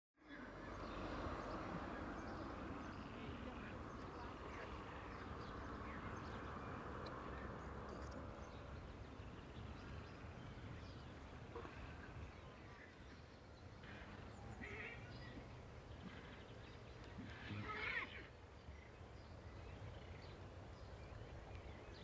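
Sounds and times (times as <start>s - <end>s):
faint animal calls: 13.8s - 18.4s.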